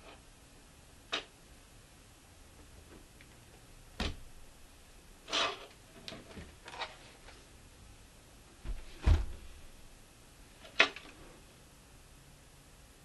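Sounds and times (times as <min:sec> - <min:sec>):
dull thumps: 0:04.0 - 0:04.4, 0:08.6 - 0:09.8
laptop scraping on desk: 0:05.3 - 0:05.7.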